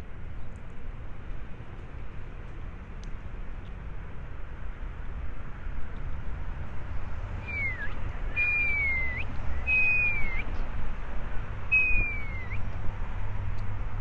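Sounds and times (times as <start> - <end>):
low wind rumble: 0.0 - 14.0
high whistled calls: 7.4 - 10.6, 11.7 - 12.7.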